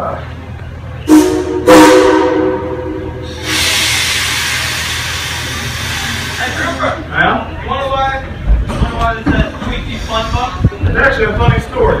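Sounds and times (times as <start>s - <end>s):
steam locomotive whistle blasts: 1.0s - 5.4s
steam hissing: 3.2s - 7.0s.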